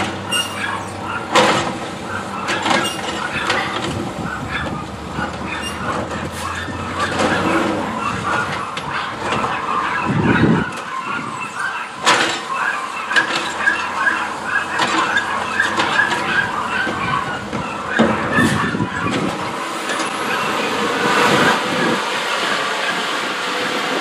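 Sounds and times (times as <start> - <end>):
diesel engine running: 0.0 - 24.0
hydraulic arm squealing: 0.2 - 1.4, 2.1 - 22.0
short high squeaks: 0.3 - 1.2, 2.6 - 3.4, 5.5 - 6.7.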